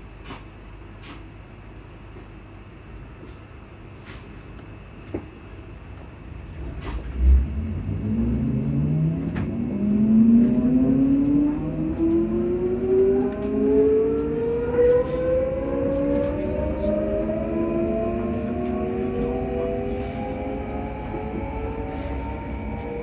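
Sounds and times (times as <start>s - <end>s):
train traction motors whining: 6.5s - 23.0s.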